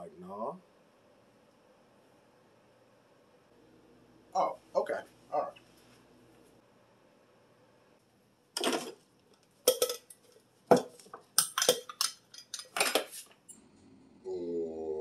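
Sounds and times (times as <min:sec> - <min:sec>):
dishes and cutlery clattering: 0:08.6 - 0:09.0, 0:09.7 - 0:10.1, 0:10.7 - 0:13.2.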